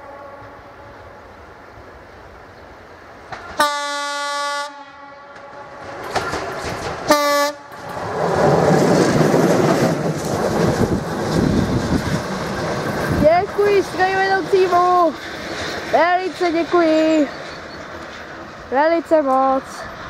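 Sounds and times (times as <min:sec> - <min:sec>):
train rumble and wheel clatter: 0:00.0 - 0:20.0
locomotive horn blasts: 0:03.6 - 0:05.7, 0:07.1 - 0:07.7.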